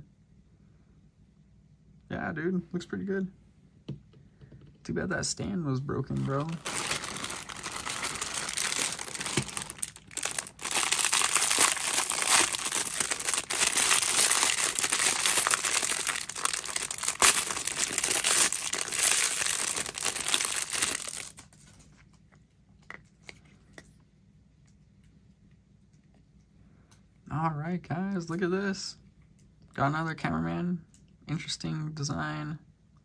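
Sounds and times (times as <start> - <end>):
plastic bag crinkling: 6.1 - 21.8.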